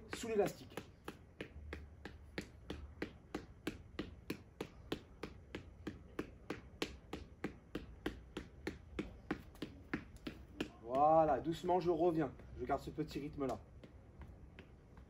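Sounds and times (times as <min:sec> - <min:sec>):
fist punching ball sharp taps: 0:00.0 - 0:11.3.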